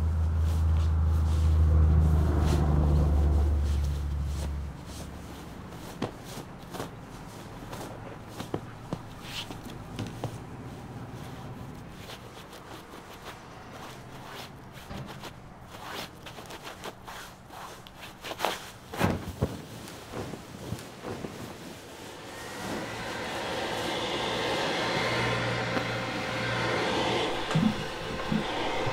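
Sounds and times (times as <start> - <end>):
bedsheets rustling: 3.6 - 22.8.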